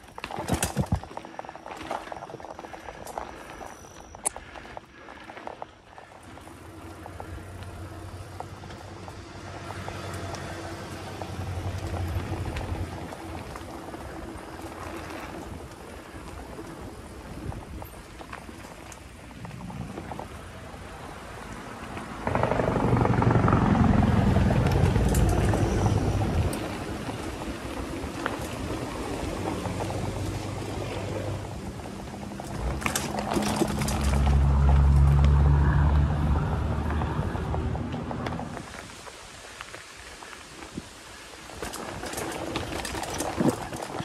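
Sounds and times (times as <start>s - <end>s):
bike tyres rolling on dirt: 0.0s - 44.0s
wind buffeting microphone: 9.8s - 35.0s.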